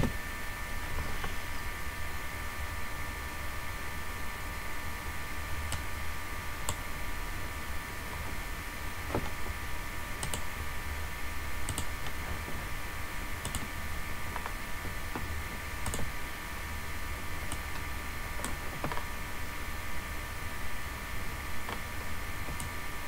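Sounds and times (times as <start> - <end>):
steady electrical hum: 0.0 - 23.0
computer mouse clicking: 5.7 - 5.9, 6.6 - 6.8, 10.2 - 10.5, 11.6 - 12.4, 13.4 - 13.7, 14.3 - 16.2, 17.4 - 19.1, 22.5 - 22.8.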